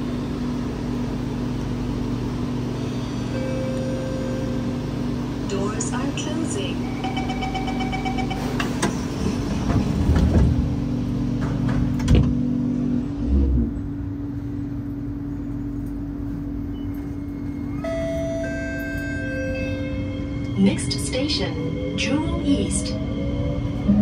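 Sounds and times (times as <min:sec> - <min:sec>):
train doors shutting: 0:00.0 - 0:14.1, 0:15.3 - 0:24.0
train motors humming: 0:00.0 - 0:24.0
door-closing chime beeps: 0:07.0 - 0:08.7.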